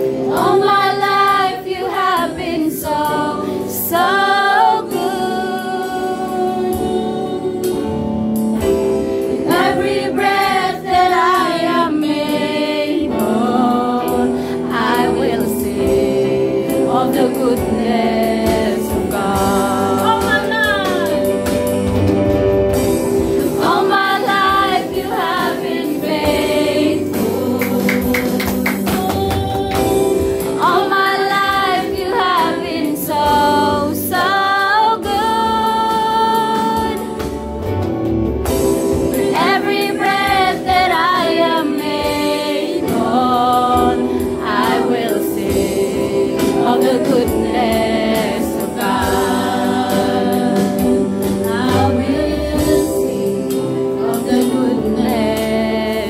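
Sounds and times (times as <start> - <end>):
women singing worship song: 0.0 - 22.1, 22.7 - 37.7, 38.5 - 56.0
electric guitar: 12.3 - 56.0.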